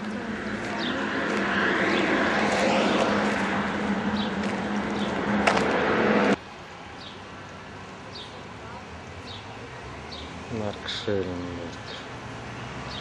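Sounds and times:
vehicle engine running: 0.0s - 6.4s
broad rushing noise: 0.0s - 7.0s.

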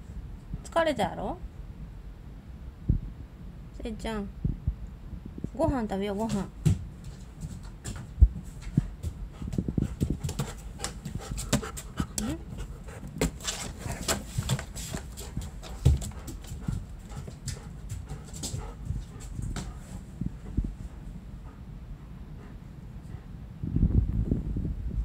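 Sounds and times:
dog panting: 8.6s - 23.4s.

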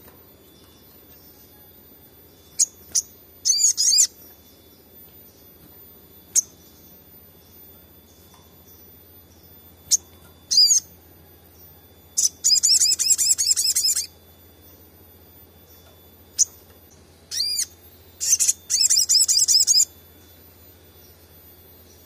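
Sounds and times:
bird singing high notes: 2.4s - 5.6s, 6.2s - 11.0s, 11.7s - 14.2s, 17.3s - 20.8s.

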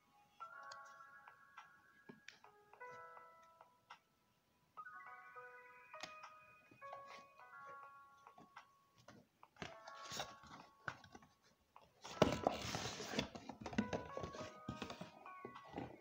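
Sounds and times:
background music: 0.0s - 16.0s
paper and cardboard rustling: 9.0s - 16.0s.

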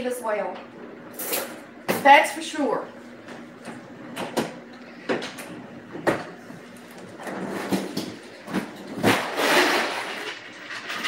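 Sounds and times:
drawer sliding rumble: 7.0s - 11.0s.

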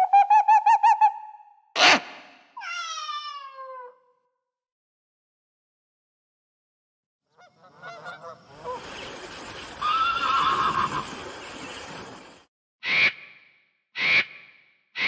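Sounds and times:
horse whinnying: 9.8s - 11.0s.

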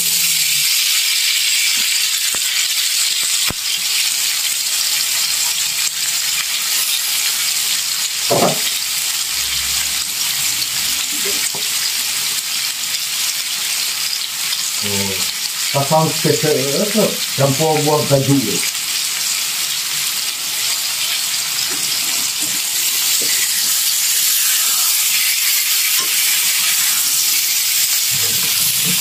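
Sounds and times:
food sizzling in hot oil: 0.0s - 29.0s
spatula scraping wok: 21.1s - 29.0s.

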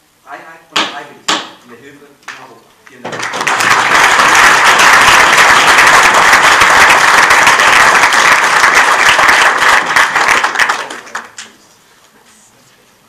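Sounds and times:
audience applauding: 3.1s - 11.6s.

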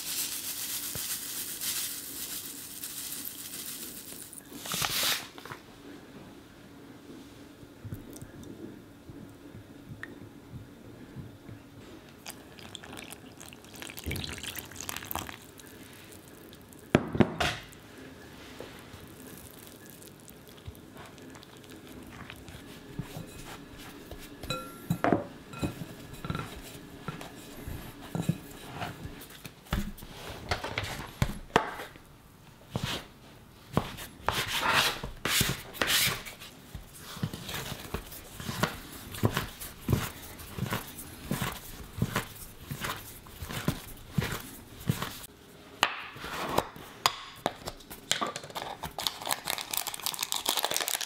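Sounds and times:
liquid pouring into flour: 12.1s - 16.9s, 18.9s - 24.3s
hands kneading dough in bowl: 18.4s - 32.0s, 32.7s - 45.3s
dough kneaded on wooden board: 32.7s - 45.3s.

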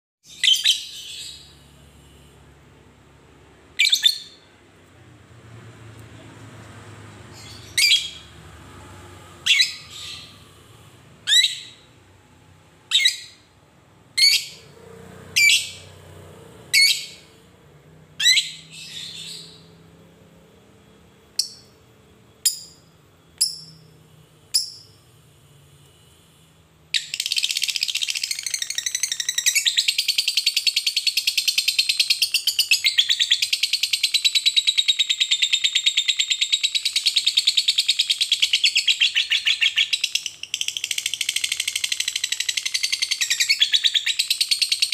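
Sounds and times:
lovebird chirping and trilling: 0.2s - 1.7s, 3.7s - 4.5s, 7.3s - 8.4s, 9.4s - 10.5s, 11.2s - 12.0s, 12.8s - 13.5s, 14.1s - 14.7s, 15.3s - 16.0s, 16.7s - 17.4s, 18.2s - 19.8s, 21.4s - 21.8s, 24.5s - 25.0s, 27.0s - 44.9s.

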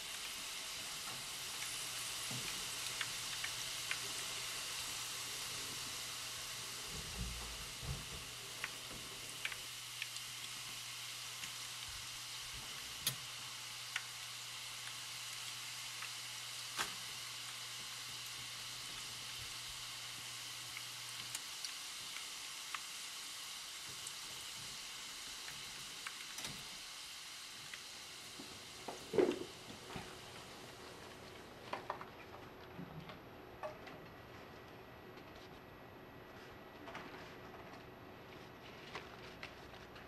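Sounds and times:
hot oil sizzling: 0.0s - 31.9s.

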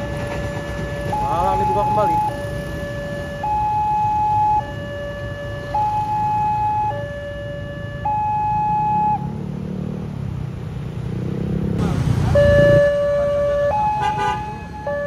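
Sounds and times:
level crossing two-tone alarm: 0.0s - 9.2s, 12.4s - 15.0s
traffic rumble: 0.0s - 15.0s.

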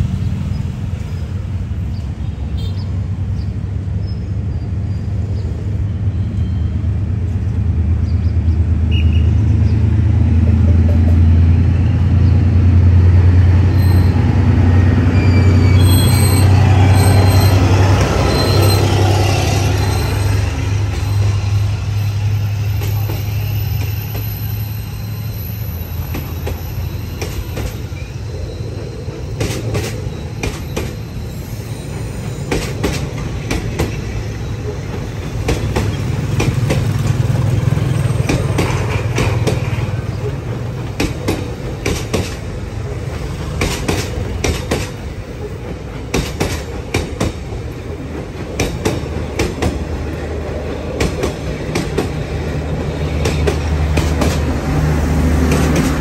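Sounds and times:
train coaches rumbling: 0.0s - 56.0s
wheels clacking over rail joints: 28.6s - 56.0s.

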